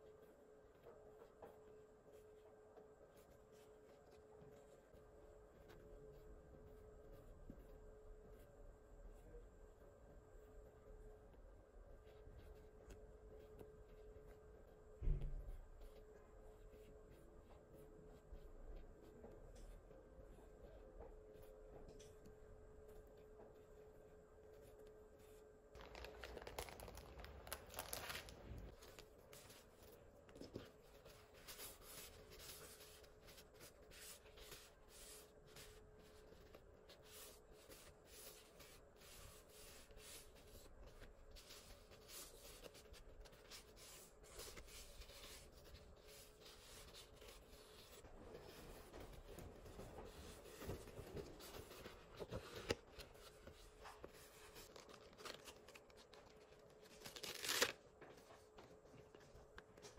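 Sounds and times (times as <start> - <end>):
paper rustling: 25.8 - 58.4.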